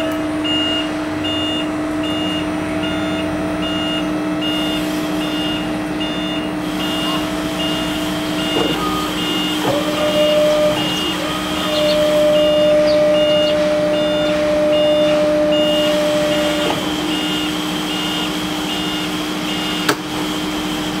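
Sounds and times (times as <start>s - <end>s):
short high warning beeps: 0.5s - 19.9s
electric motor whine: 6.8s - 17.6s.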